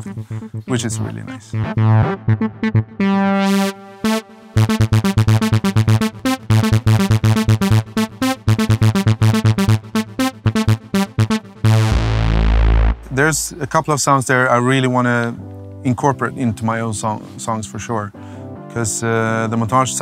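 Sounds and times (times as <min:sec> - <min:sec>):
pulsing synth bass: 0:00.0 - 0:14.0
synthesizer lead notes: 0:00.0 - 0:14.2.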